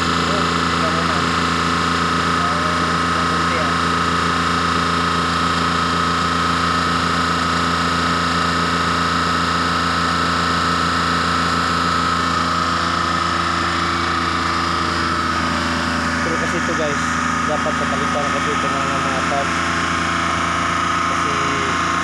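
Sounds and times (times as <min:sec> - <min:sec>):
van engine idling: 0:00.0 - 0:22.0.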